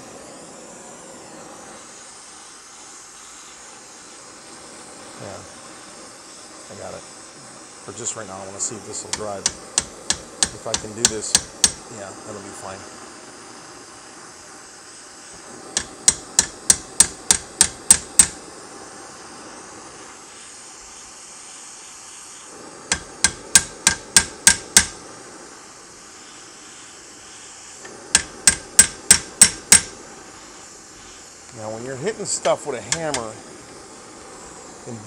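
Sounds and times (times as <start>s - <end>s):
gas torch flame hissing: 0.0s - 35.0s
hammer striking steel rivet: 9.1s - 11.8s, 15.8s - 18.4s, 22.9s - 25.0s, 28.1s - 29.9s.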